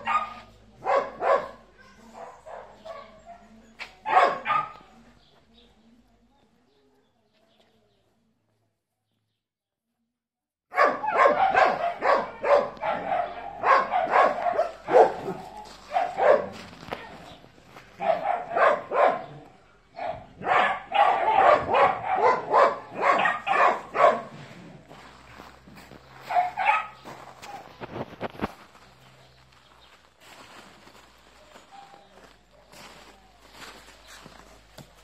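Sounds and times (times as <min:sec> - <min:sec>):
dogs barking: 0:00.0 - 0:05.0, 0:10.7 - 0:27.9.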